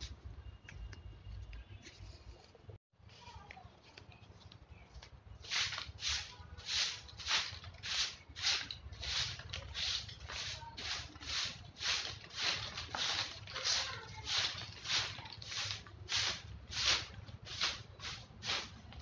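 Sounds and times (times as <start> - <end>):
broom sweeping concrete floor: 5.4 - 19.0.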